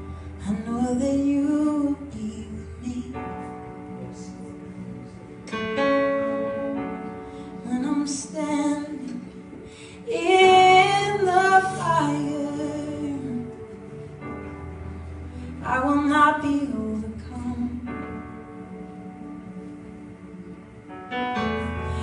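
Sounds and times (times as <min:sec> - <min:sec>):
woman singing: 0:00.4 - 0:04.6, 0:07.6 - 0:13.9, 0:15.6 - 0:18.5.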